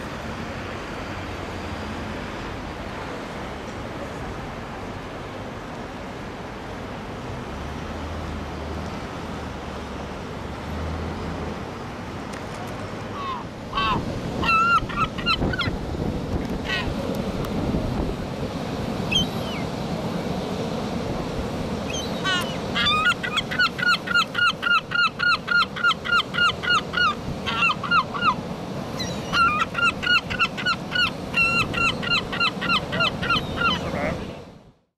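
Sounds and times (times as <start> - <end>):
wind noise: 13.4 - 20.3
gull laughing yelps: 22.3 - 28.4, 29.0 - 33.9.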